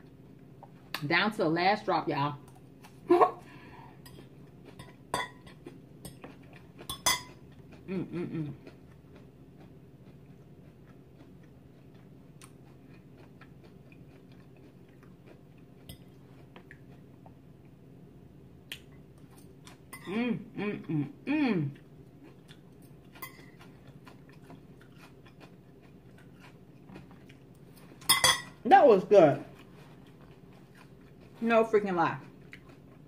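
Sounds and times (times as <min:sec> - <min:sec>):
chewing salad: 0:02.4 - 0:03.1, 0:03.9 - 0:17.8, 0:18.6 - 0:33.0
fork clinking on a plate: 0:06.9 - 0:07.4, 0:28.0 - 0:28.6.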